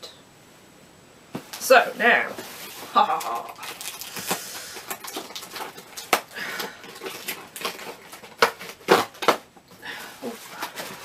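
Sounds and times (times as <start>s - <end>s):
packaging crackling and rustling: 2.3s - 11.0s.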